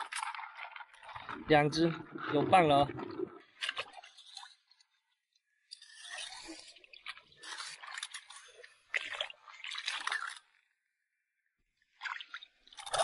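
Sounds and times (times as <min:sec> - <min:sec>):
footsteps splashing in shallow water: 0:00.0 - 0:04.7, 0:06.0 - 0:10.5.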